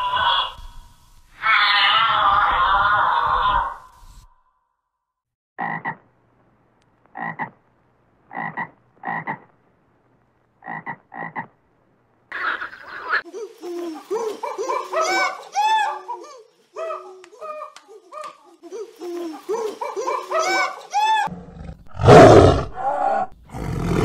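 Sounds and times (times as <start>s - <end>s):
frog croaking: 5.6s - 6.0s, 7.1s - 7.6s, 8.3s - 9.5s, 10.6s - 11.6s.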